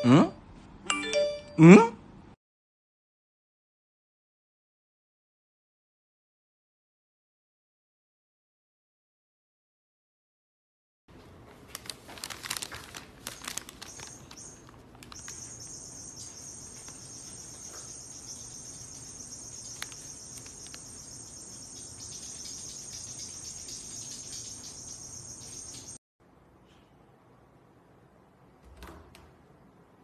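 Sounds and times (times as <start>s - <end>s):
crackly paper rustling: 11.2s - 15.8s, 19.6s - 21.0s
high-pitched insect chirring: 13.8s - 26.0s.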